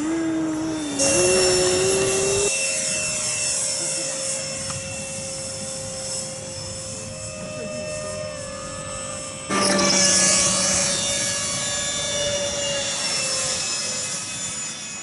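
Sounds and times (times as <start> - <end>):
model airplane motor whine: 0.0 - 15.0.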